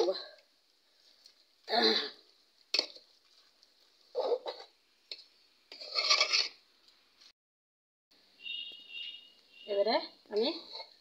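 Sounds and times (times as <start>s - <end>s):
spoon scraping and stirring in a pot: 2.6s - 6.6s, 10.5s - 11.0s.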